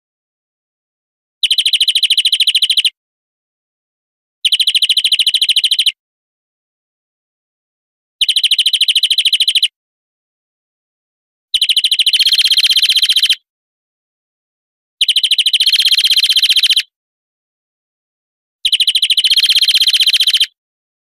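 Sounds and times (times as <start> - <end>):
finch trilling song: 1.4 - 3.0, 4.4 - 6.0, 8.2 - 9.7, 11.6 - 13.4, 15.0 - 16.9, 18.6 - 20.6.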